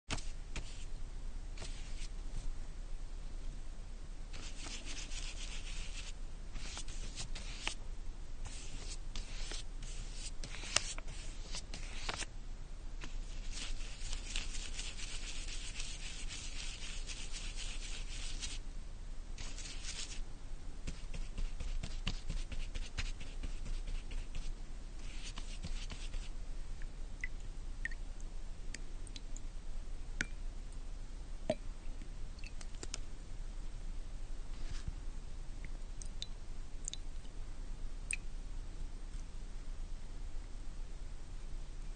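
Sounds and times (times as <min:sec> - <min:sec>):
paint rubbing strokes on wall: 0:00.1 - 0:00.9, 0:01.6 - 0:02.1, 0:04.3 - 0:07.8, 0:08.4 - 0:12.3, 0:13.0 - 0:18.6, 0:19.4 - 0:20.2, 0:20.9 - 0:26.3.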